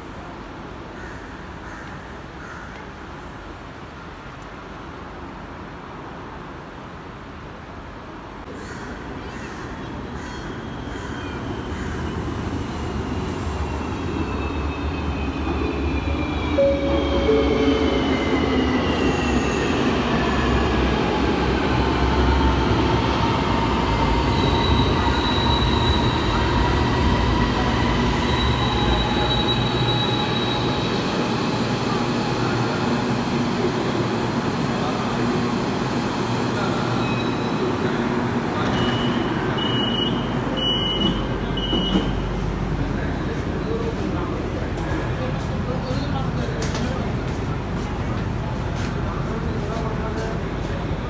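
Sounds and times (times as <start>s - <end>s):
train rumble: 8.4s - 51.0s
high-pitched brake squealing: 24.2s - 31.3s, 37.0s - 37.9s.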